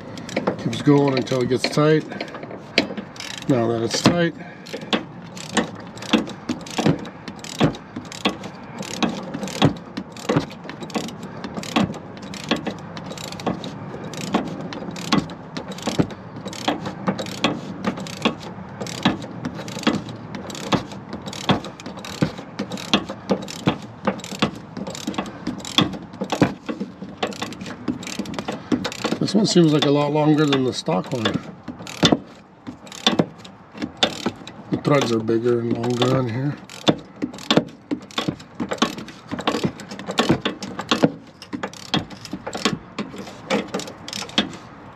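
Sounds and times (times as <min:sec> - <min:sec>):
socket ratchet clicking: 0:00.1 - 0:03.6, 0:04.6 - 0:44.6.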